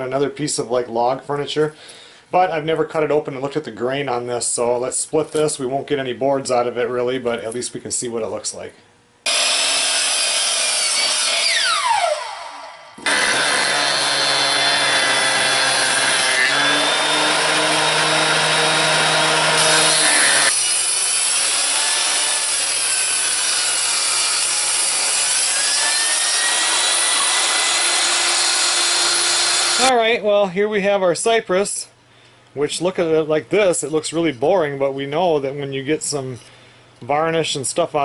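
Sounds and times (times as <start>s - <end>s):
jointer planing wood: 9.3s - 12.3s, 13.0s - 29.9s
power saw cutting wood: 9.3s - 29.9s.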